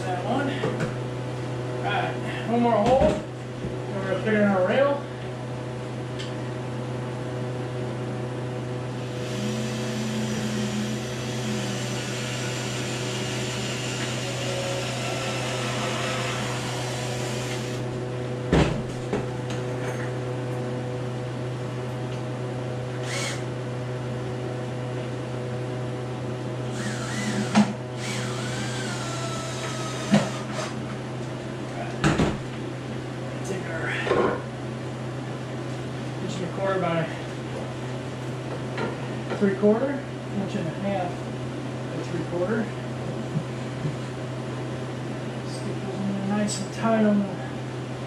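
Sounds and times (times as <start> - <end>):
power drill whining: 9.2 - 17.9, 23.0 - 23.5, 26.7 - 30.8.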